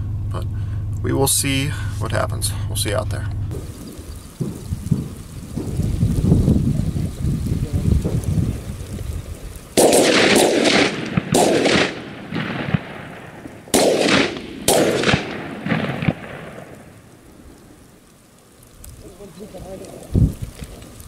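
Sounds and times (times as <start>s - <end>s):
shotgun shots echoing: 9.8s - 17.3s.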